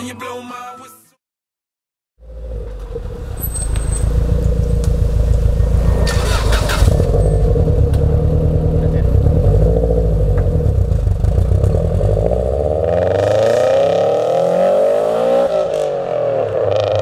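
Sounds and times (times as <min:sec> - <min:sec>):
car engine idling: 0:02.2 - 0:12.3.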